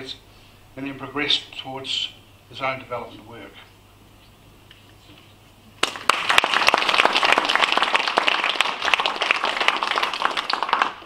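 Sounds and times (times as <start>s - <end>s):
audience applauding: 5.8s - 11.0s.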